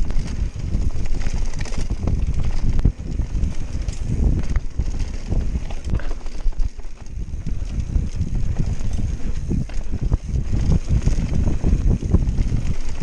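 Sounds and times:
bike knocking and rattling: 0:00.0 - 0:13.0
tyres rumbling on dirt trail: 0:00.0 - 0:13.0
wind buffeting microphone: 0:00.0 - 0:13.0.

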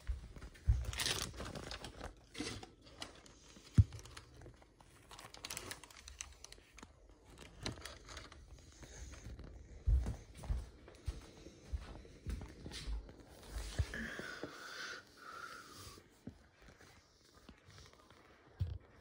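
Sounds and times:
plastic crinkling: 0:00.8 - 0:09.6.

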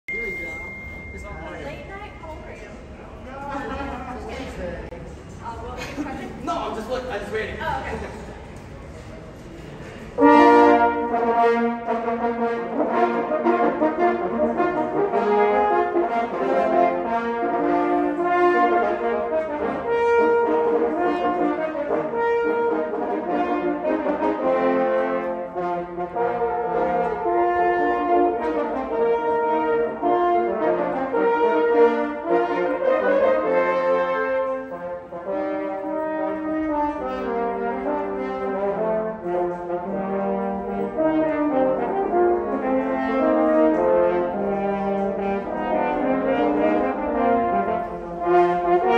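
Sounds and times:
french horns playing in harmony: 0:10.2 - 0:48.9.

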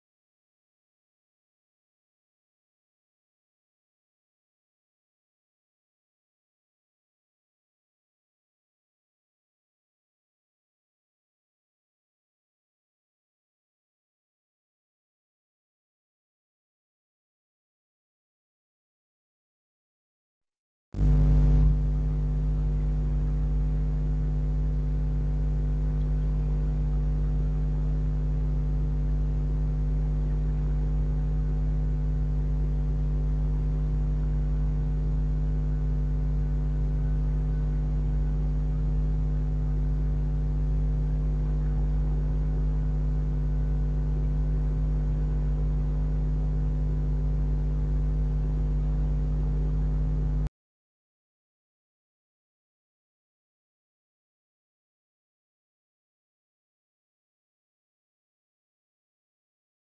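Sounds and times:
electrical hum: 0:21.0 - 0:50.5.

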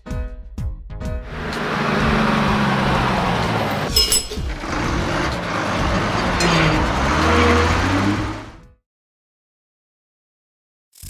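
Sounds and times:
bus engine running: 0:01.2 - 0:08.7.

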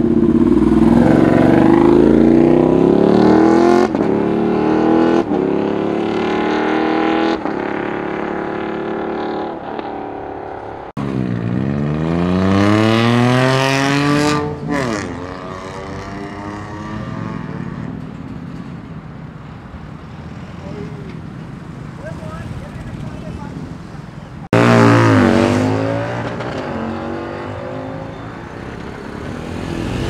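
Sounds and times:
engine revving up: 0:00.0 - 0:09.9, 0:11.0 - 0:17.8, 0:24.5 - 0:28.1
motorcycle engine accelerating: 0:00.0 - 0:18.6, 0:24.5 - 0:28.2.

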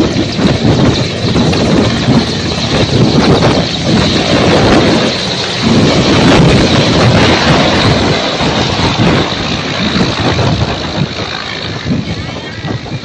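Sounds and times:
helicopter lifting off: 0:00.0 - 0:13.0.

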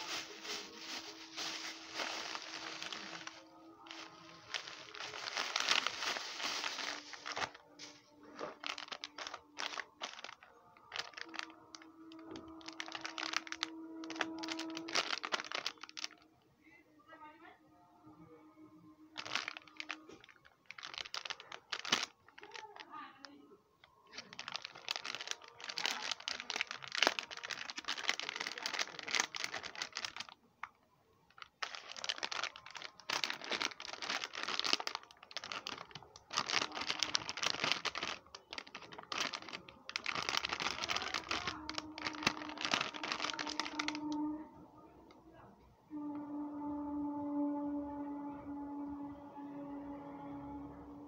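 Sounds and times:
plastic packets crinkling: 0:00.0 - 0:16.2, 0:19.0 - 0:44.2.

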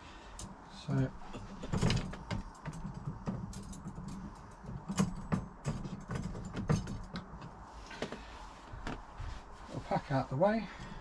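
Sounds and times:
light rattling: 0:00.3 - 0:09.6
dog gate clicks and knocks: 0:01.4 - 0:07.5.

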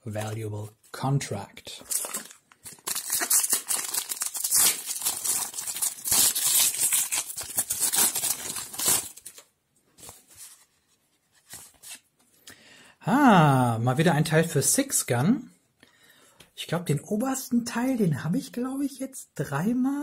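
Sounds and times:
foil wrapper tearing and crinkling: 0:01.9 - 0:09.5.

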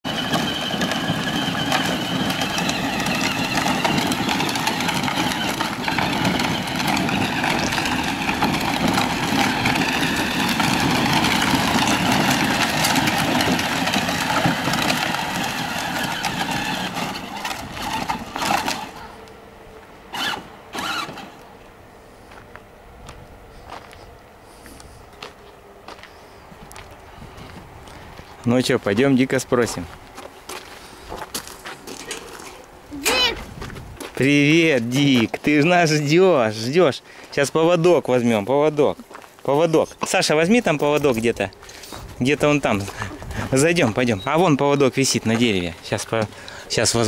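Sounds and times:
plastic wheels crunching gravel: 0:00.0 - 0:19.2, 0:20.1 - 0:21.4, 0:24.6 - 0:47.0
electric motor whine: 0:00.1 - 0:24.0
short noises: 0:20.1 - 0:21.5, 0:31.9 - 0:33.8.

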